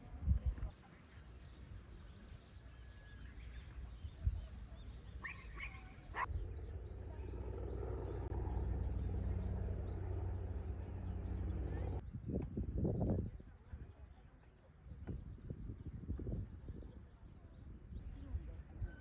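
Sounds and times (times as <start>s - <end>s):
bird chirps: 0.8s - 12.3s
steady low rumbling noise: 6.0s - 13.4s.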